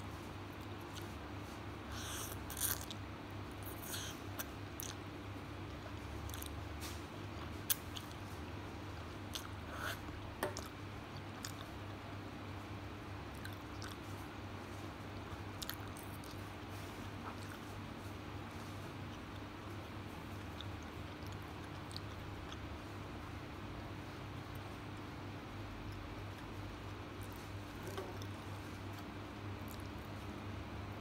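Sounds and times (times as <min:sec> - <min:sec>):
wet chewing: 0:01.9 - 0:03.0, 0:05.7 - 0:06.6, 0:09.3 - 0:12.0, 0:13.3 - 0:14.2, 0:15.3 - 0:17.7, 0:19.1 - 0:22.7, 0:27.2 - 0:30.2.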